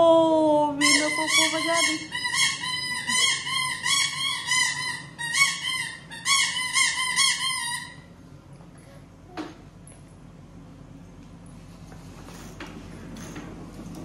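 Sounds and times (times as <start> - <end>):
warbling electronic toy horn: 0.8 - 8.0.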